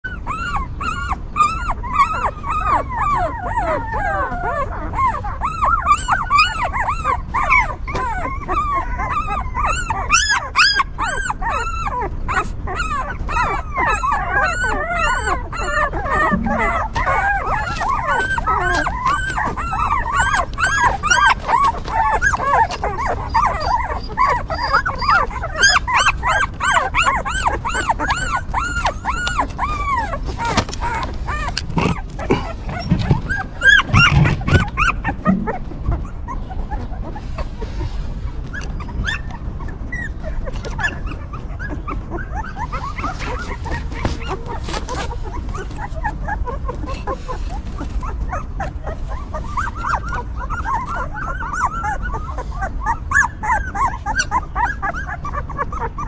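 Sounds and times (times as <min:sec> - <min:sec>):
puppies whimpering: 0:00.0 - 0:56.0.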